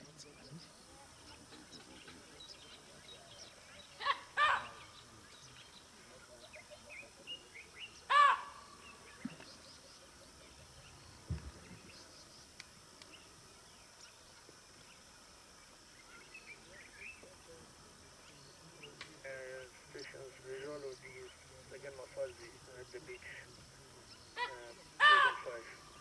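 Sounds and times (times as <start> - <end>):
faint bird chirping: 0.0 - 26.0
harsh bird calls: 1.2 - 12.5, 18.8 - 26.0
low thud: 11.2 - 11.9.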